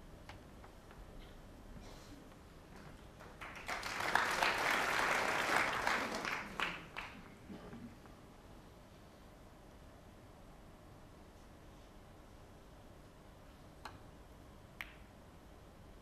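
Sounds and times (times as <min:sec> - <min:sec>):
audience applauding: 0:03.2 - 0:07.4.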